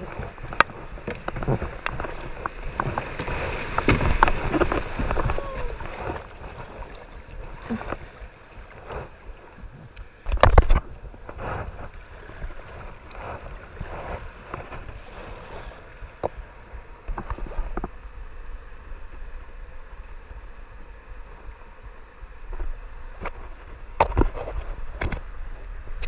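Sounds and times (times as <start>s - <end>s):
paddle splashing in water: 0.0s - 17.9s.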